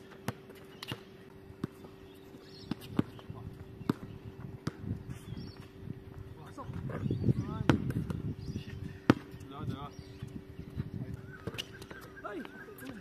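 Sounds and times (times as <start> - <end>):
basketball bouncing on hard court: 0.1 - 5.6, 6.9 - 8.3.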